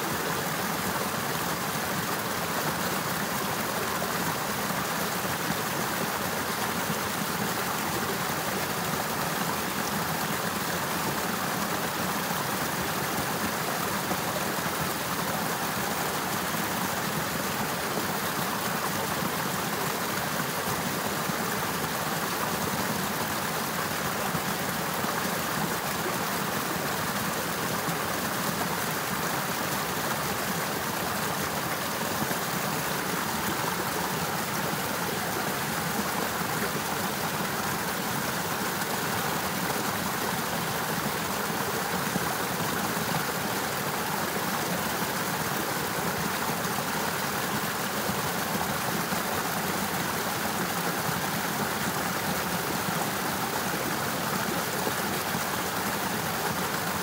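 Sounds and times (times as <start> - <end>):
river water rushing: 0.0 - 57.0.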